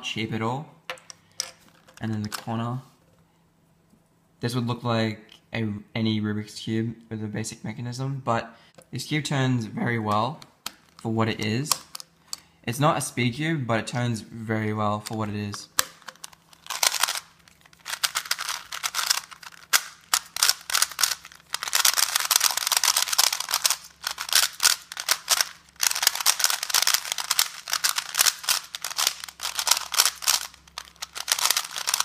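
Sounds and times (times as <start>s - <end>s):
plastic puzzle cube clicking: 15.8s - 17.2s, 17.8s - 32.0s.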